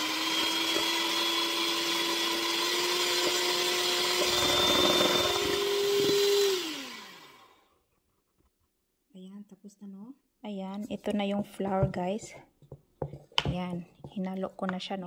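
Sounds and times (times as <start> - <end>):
electric mixer motor whine: 0.0 - 7.7.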